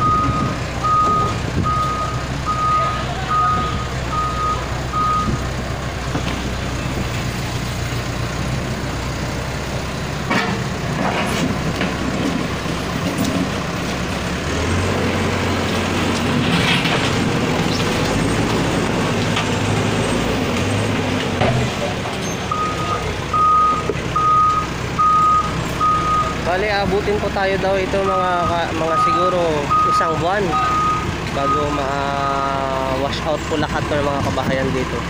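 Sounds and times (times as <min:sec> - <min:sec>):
reversing alarm beeping: 0:00.0 - 0:05.4, 0:22.5 - 0:26.5, 0:28.8 - 0:31.8
diesel engine running: 0:00.0 - 0:35.0.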